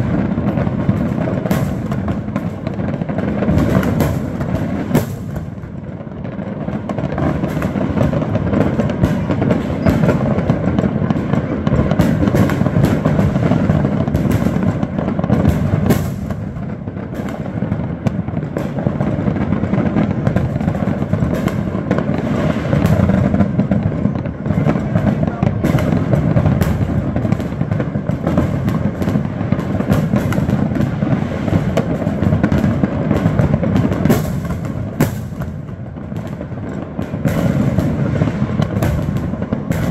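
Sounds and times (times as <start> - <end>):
firecracker bangs and pops: 0.0 - 39.9
rumble of firework booms: 0.0 - 39.9.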